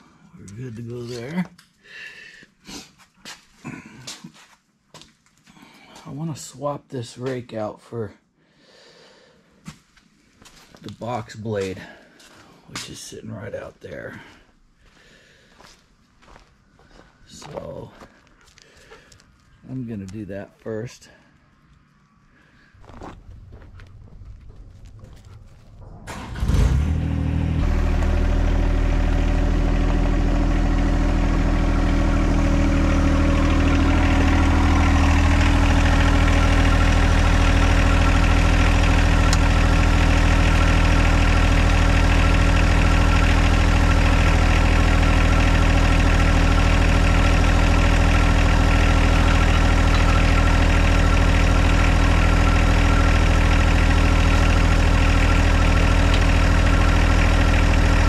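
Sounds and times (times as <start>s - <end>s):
diesel tractor engine starting and idling: 22.8s - 58.0s.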